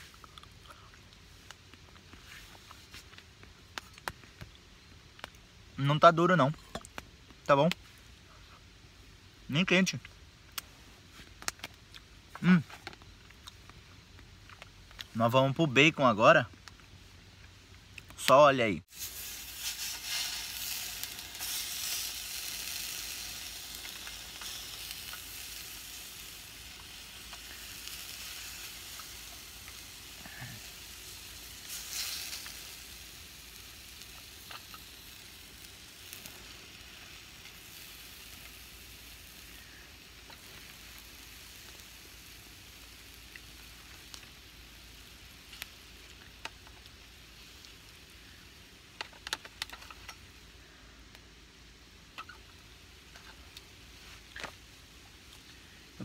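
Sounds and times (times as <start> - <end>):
bacon sizzling in a pan: 18.9 - 50.5.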